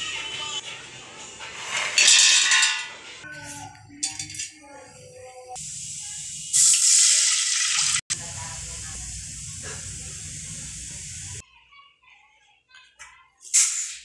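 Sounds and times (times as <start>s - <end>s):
water hissing in hot oil: 5.4s - 11.4s.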